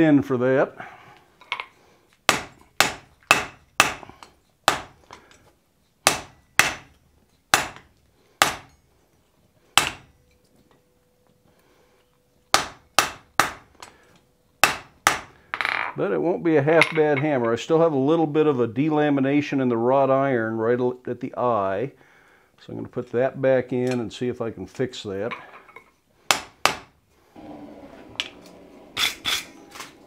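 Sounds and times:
hammer striking hot metal on anvil: 6.1 - 8.8, 9.8 - 10.1.

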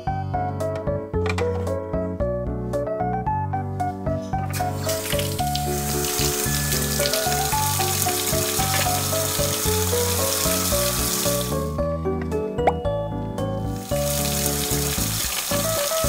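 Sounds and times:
light background music: 0.0 - 16.0
water running from toy faucet: 4.5 - 11.6, 13.8 - 16.0.

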